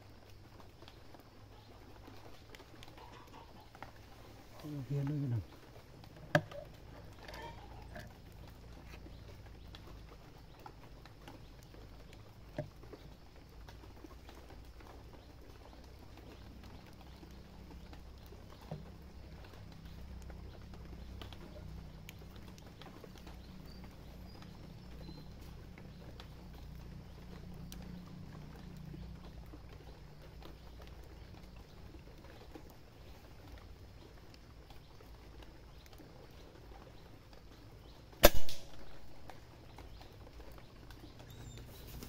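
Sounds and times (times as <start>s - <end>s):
low steady hum: 3.6s - 42.0s
air rifle shot: 38.2s - 38.9s.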